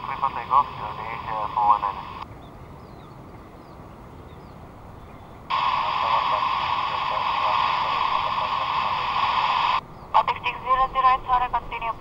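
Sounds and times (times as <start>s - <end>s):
loud radio static rush: 0.0s - 2.2s, 5.5s - 12.0s
low radio hiss: 0.0s - 2.3s, 4.7s - 12.0s.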